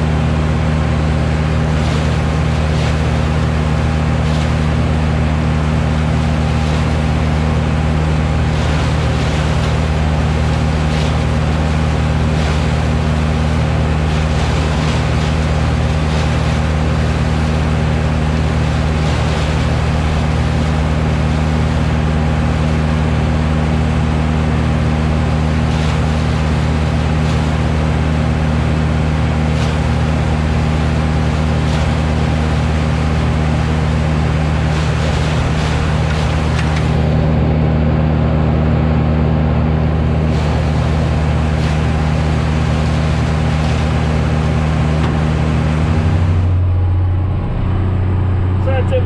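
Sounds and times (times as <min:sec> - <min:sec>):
tractor diesel engine running: 0:00.0 - 0:49.0.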